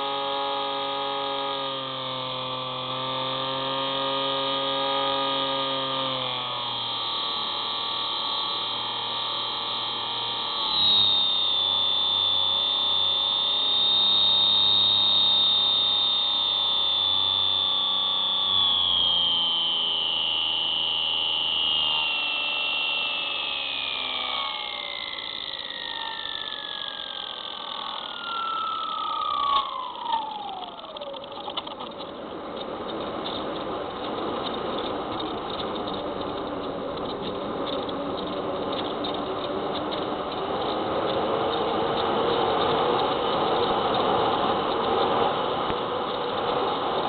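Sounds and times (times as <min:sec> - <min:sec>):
electric motor and propeller whining: 0:00.0 - 0:47.0
clicks: 0:23.9 - 0:41.7.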